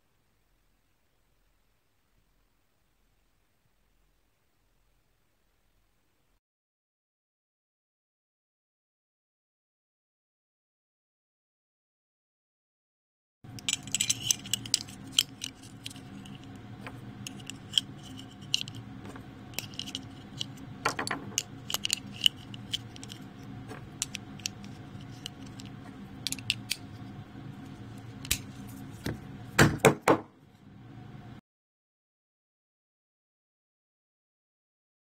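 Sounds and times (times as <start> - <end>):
low hum: 13.5 - 29.8.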